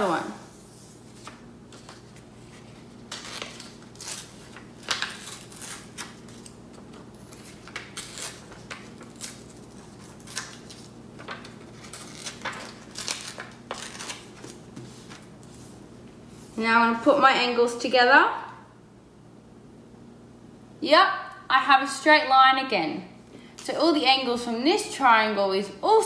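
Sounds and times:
paper tearing: 1.2s - 14.6s.

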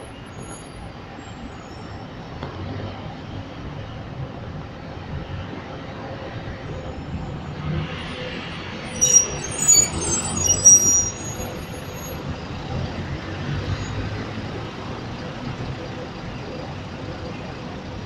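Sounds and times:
bus engine running: 0.0s - 18.0s
street traffic: 0.0s - 18.0s
high-pitched brake squeals: 0.1s - 2.0s, 8.1s - 12.2s.

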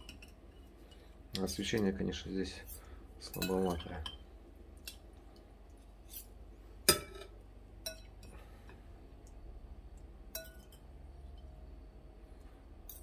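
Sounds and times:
plates and spoon clinking: 6.9s - 8.4s, 10.3s - 11.5s.

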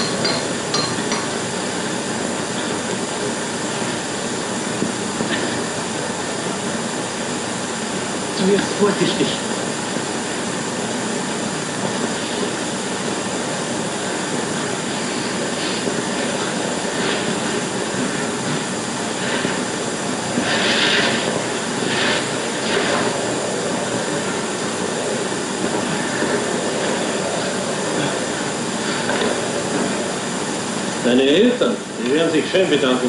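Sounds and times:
film soundtrack rushing noise: 0.0s - 33.0s
short hissing bursts: 18.6s - 25.2s.

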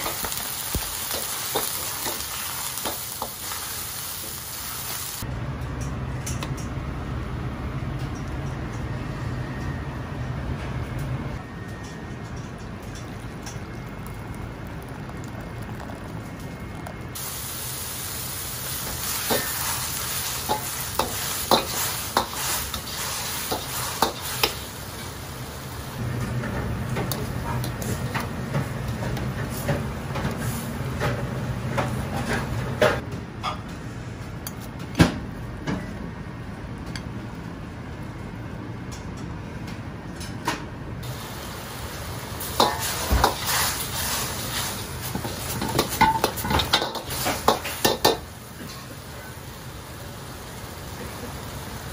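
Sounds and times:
food sizzling in wok: 0.0s - 5.2s, 17.2s - 26.0s, 41.0s - 51.9s
boiling water: 12.6s - 31.2s, 41.0s - 51.9s
metal utensils clacking on wok: 45.2s - 48.9s.

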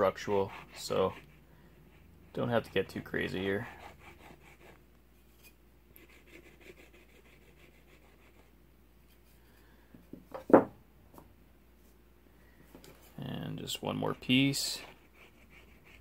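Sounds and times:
wooden knocks on workbench: 10.2s - 10.8s.

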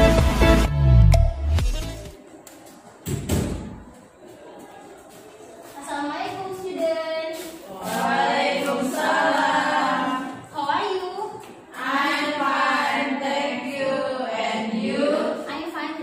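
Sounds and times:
voices chanting in unison: 7.7s - 10.5s, 11.7s - 15.5s.

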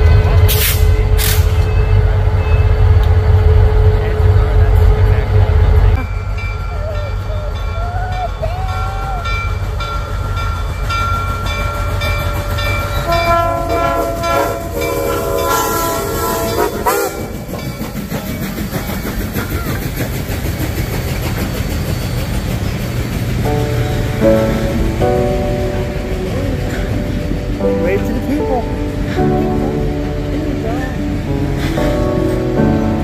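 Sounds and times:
diesel locomotive rumbling: 0.0s - 33.0s
high squealing from train: 0.3s - 3.0s, 5.9s - 24.8s
locomotive horn: 12.9s - 17.5s.

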